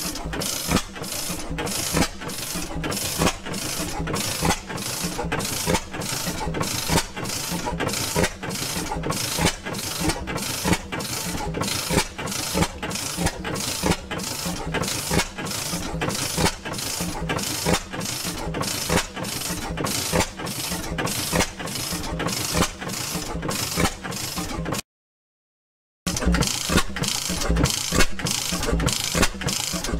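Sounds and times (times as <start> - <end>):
two-stroke gas engine running: 0.0 - 24.8, 26.1 - 29.9.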